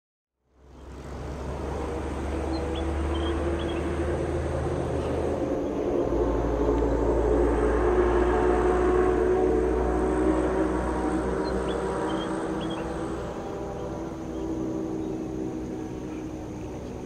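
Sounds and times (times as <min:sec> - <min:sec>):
jet airliner engine drone: 0:00.6 - 0:17.0
low rumble: 0:00.6 - 0:17.0.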